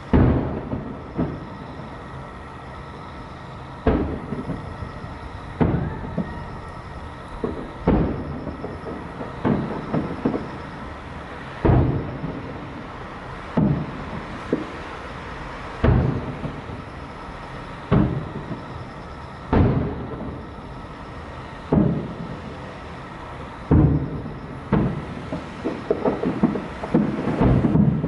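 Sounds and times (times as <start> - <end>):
firework shells booming: 0.0 - 1.9, 3.8 - 10.9, 11.5 - 12.9, 13.5 - 14.9, 15.8 - 17.2, 17.8 - 20.6, 21.7 - 22.6, 23.6 - 28.0
small firework pops: 0.1 - 1.6, 5.6 - 6.5, 7.4 - 10.8, 13.5 - 14.9, 15.8 - 16.8, 17.9 - 18.8, 21.7 - 22.1, 23.7 - 28.0.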